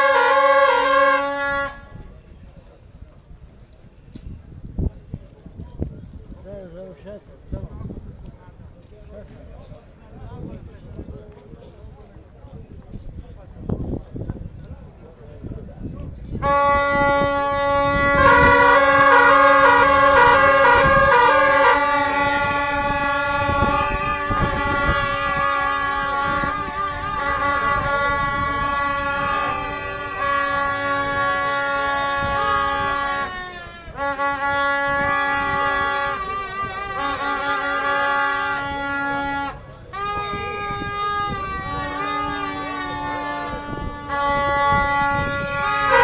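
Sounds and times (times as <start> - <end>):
horn holding steady note: 0.0 - 2.0, 16.4 - 46.0
horn trilling between two notes: 0.0 - 2.0, 16.4 - 46.0
crowd walking: 0.0 - 46.0.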